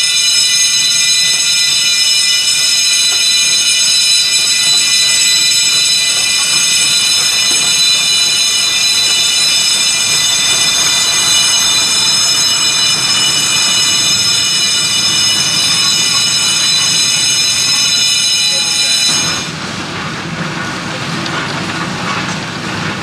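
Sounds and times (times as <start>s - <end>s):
steel wheels squealing on curve: 0.0s - 19.6s.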